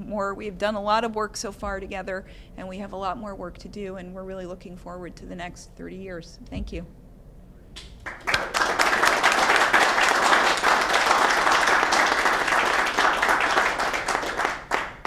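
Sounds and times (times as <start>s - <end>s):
audience applauding: 8.0s - 15.0s.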